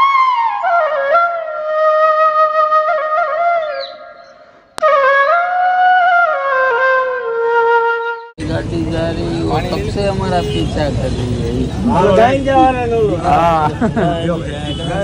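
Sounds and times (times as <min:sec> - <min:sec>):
solo flute melody: 0:00.0 - 0:08.4.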